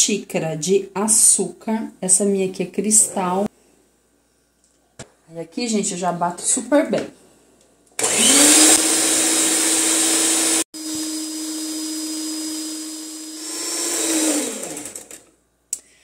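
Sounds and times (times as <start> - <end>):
electric stand mixer whirring: 8.0 - 15.2.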